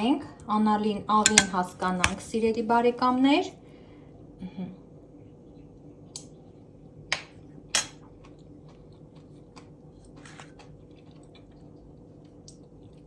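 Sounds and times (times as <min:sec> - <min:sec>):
low steady hum: 0:00.0 - 0:13.0
spoon clicking on metal bowl: 0:01.2 - 0:02.2.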